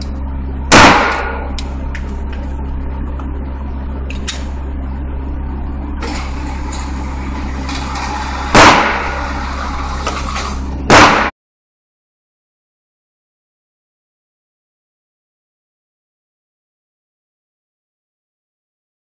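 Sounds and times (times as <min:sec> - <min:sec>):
electric target carrier running: 0:00.0 - 0:11.3
ventilation humming: 0:00.0 - 0:11.3
echoing gunshots: 0:00.7 - 0:01.6, 0:08.5 - 0:09.4, 0:10.9 - 0:11.3.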